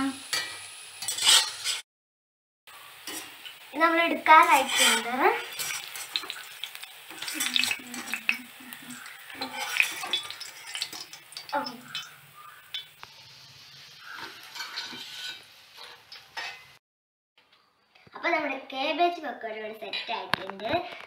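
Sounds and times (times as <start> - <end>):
oil sizzling: 0.0 - 1.8, 2.7 - 16.8
wire skimmer scraping a wok: 0.0 - 1.8, 3.0 - 3.6, 4.2 - 16.8.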